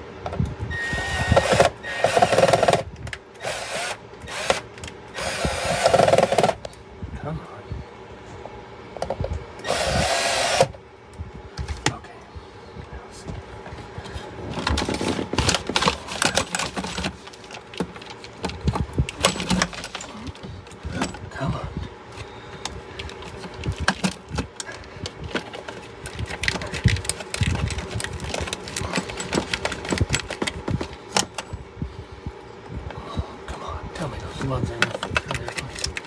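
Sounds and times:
wires rustling and clicking: 12.8 - 21.4, 22.1 - 31.6, 34.1 - 36.0
metal case clanking and scraping: 14.3 - 21.4, 25.2 - 31.6, 34.3 - 36.0.

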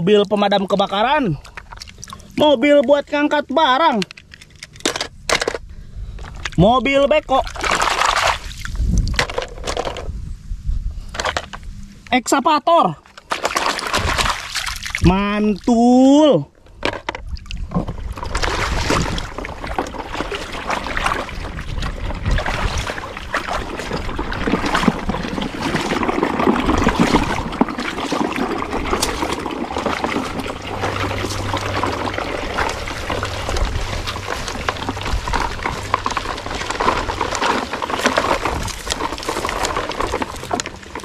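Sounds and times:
water splashing and sloshing: 0.0 - 10.2, 13.0 - 41.0
plastic toys clicking and rattling: 3.9 - 5.6, 9.1 - 10.1, 23.8 - 41.0.

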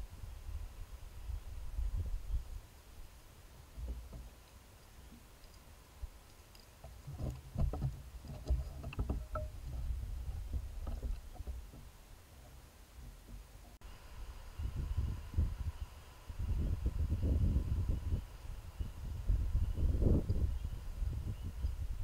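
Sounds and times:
soft knocks and rustles: 6.8 - 13.8.

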